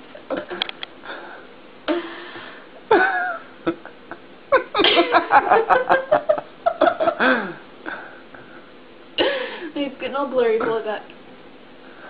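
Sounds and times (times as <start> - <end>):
people laughing: 4.6 - 7.5.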